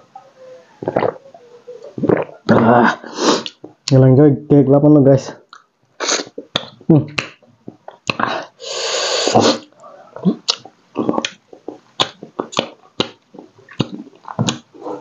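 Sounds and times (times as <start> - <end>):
person slurping: 0.8 - 1.2, 1.9 - 3.6, 6.0 - 6.7, 7.9 - 15.0
wet chewing smacks and clicks: 5.5 - 8.3, 10.2 - 15.0.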